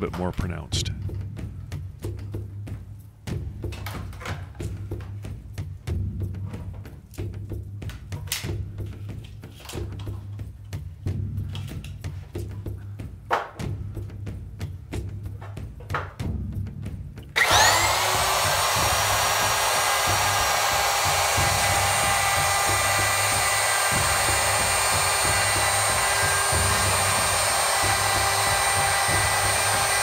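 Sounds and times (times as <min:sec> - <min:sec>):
electric router whining: 0:17.4 - 0:30.0.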